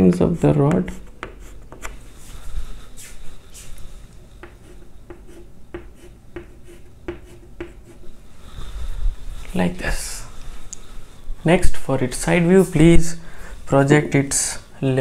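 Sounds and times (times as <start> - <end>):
chalk scratching on blackboard: 0.1 - 2.3, 4.4 - 8.2.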